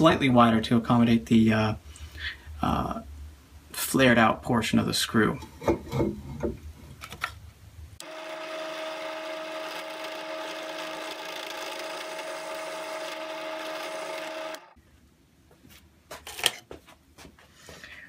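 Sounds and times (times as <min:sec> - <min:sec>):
drill press cutting steel: 0:08.0 - 0:14.8.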